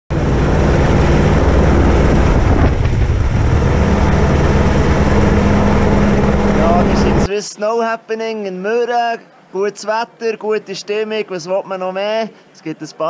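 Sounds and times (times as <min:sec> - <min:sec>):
helicopter rotor beat: 0:00.1 - 0:07.3
steady hum: 0:00.1 - 0:07.3.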